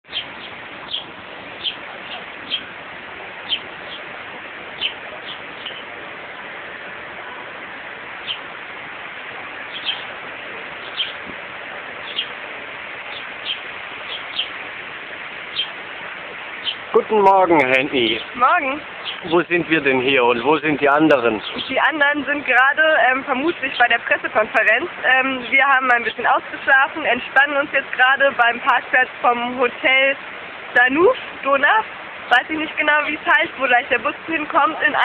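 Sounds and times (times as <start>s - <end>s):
small bird chirping: 0.0s - 2.7s, 3.4s - 4.1s, 4.7s - 5.9s, 8.2s - 8.5s, 9.6s - 10.2s, 10.8s - 11.3s, 12.0s - 12.4s, 13.1s - 14.6s, 15.5s - 15.8s, 16.6s - 16.9s, 19.0s - 19.5s, 21.4s - 21.8s
steady outdoor hiss: 0.0s - 35.0s.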